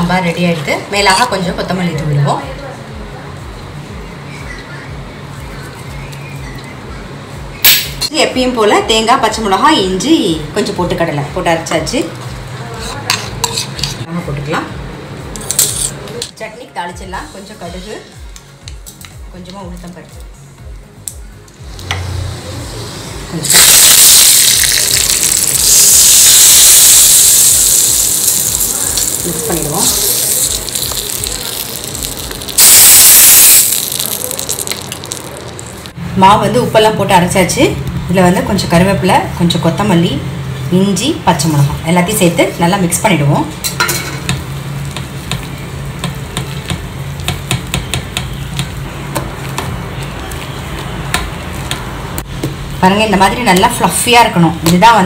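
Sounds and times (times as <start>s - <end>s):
hot oil sizzling: 21.6s - 36.0s, 43.0s - 55.0s
batter slapping in metal bowl: 33.5s - 35.8s.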